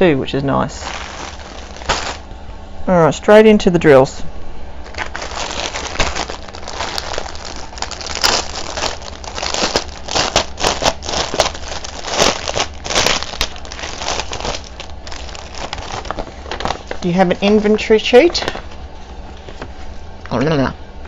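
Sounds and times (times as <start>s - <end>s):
plastic bag crinkling: 0.8s - 2.3s, 4.8s - 18.8s.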